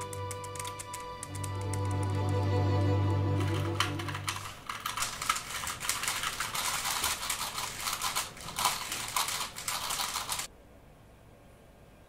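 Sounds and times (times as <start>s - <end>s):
background music: 0.0s - 4.6s
puzzle cube plastic clicking: 0.0s - 10.5s.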